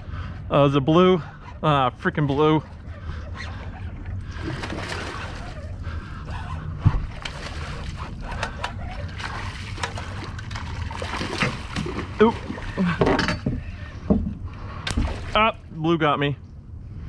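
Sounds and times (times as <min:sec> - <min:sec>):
fish splashing and thrashing: 0:02.6 - 0:15.4.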